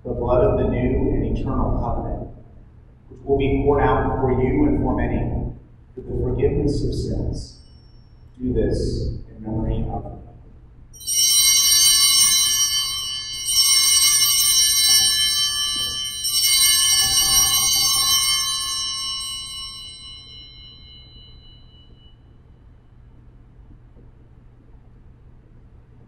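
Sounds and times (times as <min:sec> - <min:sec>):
altar bells jingling: 0:11.0 - 0:22.2.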